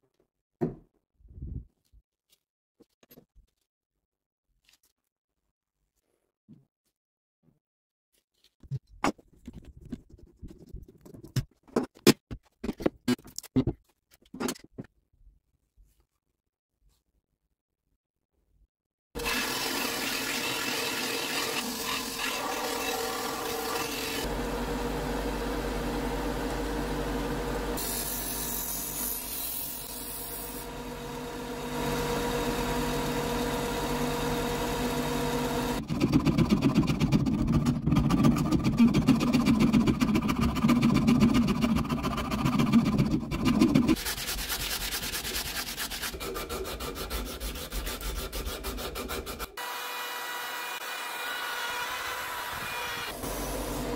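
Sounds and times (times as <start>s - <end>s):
wood sanding and rasping: 35.7s - 49.7s.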